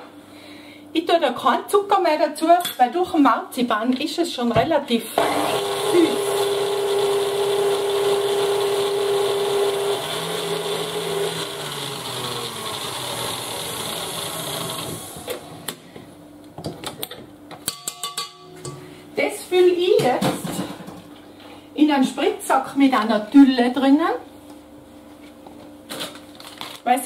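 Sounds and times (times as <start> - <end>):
stand mixer motor whirring: 5.2 - 15.7.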